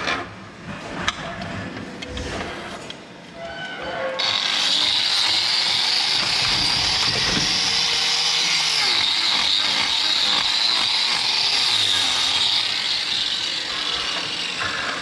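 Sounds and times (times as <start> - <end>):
power tool whining: 4.2 - 15.0.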